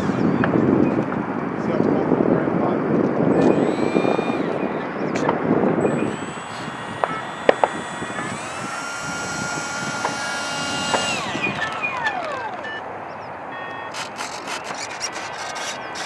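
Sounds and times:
electric ducted fan whining: 0:00.0 - 0:16.0
scattered clicks: 0:05.2 - 0:12.8, 0:13.6 - 0:16.0.

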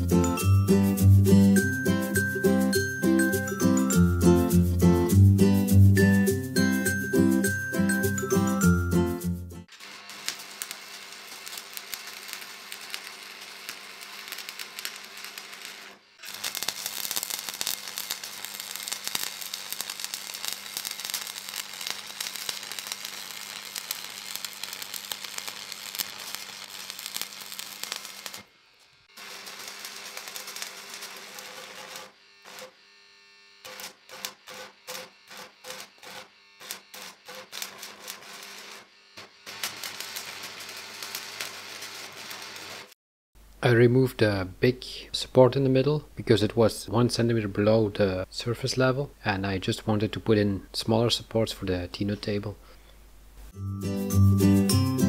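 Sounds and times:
arc welding crackling sizzle: 0:09.6 - 0:43.0.

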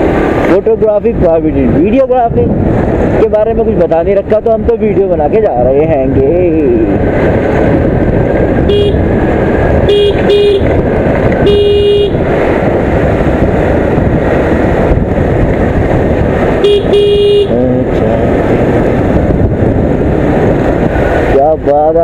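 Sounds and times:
wind rushing: 0:00.0 - 0:22.0
scooter horn beeping: 0:08.6 - 0:09.1, 0:09.8 - 0:10.8, 0:11.4 - 0:12.2, 0:16.6 - 0:17.6.

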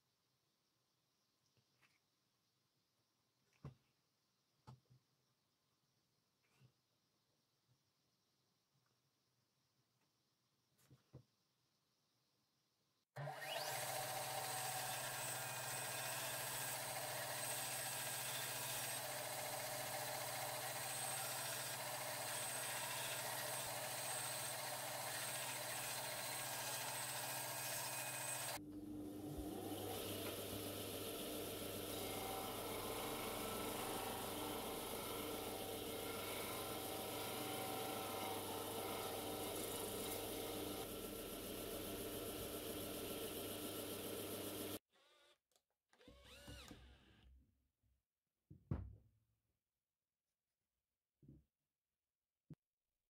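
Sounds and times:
band saw running: 0:13.2 - 0:44.8
disc sander motor hum: 0:13.2 - 0:44.8.

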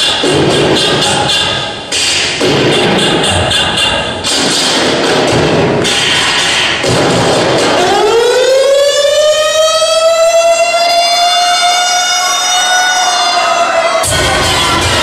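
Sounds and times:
electronic dance music with beat: 0:00.0 - 0:15.0
fire truck siren wailing: 0:07.7 - 0:15.0.

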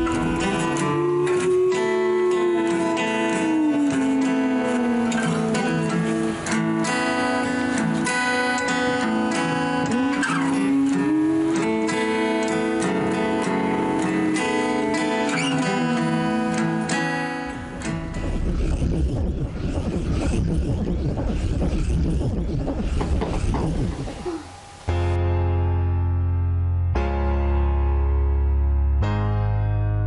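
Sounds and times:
acoustic guitar picking and strumming: 0:00.0 - 0:25.2
low rumble: 0:17.6 - 0:25.1.

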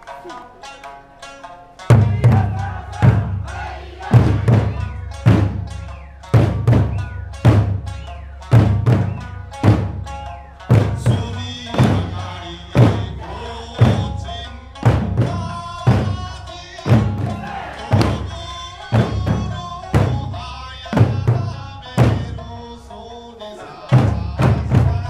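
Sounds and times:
lute music with singing: 0:00.0 - 0:25.0
barrel drums and hand drums beating: 0:01.9 - 0:22.6, 0:23.9 - 0:25.0.

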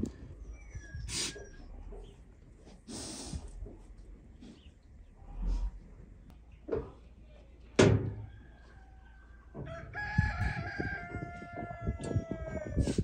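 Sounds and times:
rooster crowing: 0:08.1 - 0:13.0.

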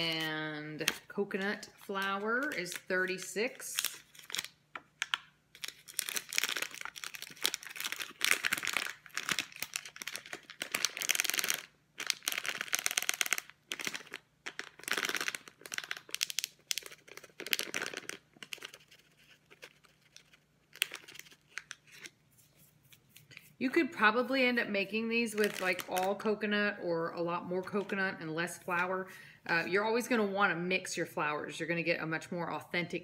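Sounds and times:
plastic bag crinkling: 0:00.0 - 0:23.6, 0:25.2 - 0:26.5.

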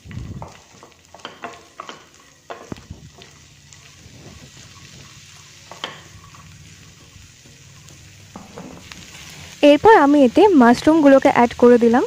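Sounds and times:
vegetables sizzling in a pan: 0:00.0 - 0:12.0
wooden spatula scraping and tapping: 0:00.1 - 0:09.4.

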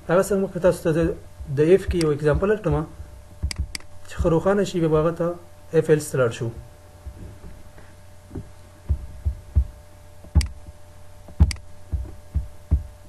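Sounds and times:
faint electrical hum: 0:00.0 - 0:13.0
low thumps: 0:00.7 - 0:04.4, 0:06.5 - 0:13.0
computer mouse clicks: 0:10.4 - 0:10.6, 0:11.4 - 0:11.7.

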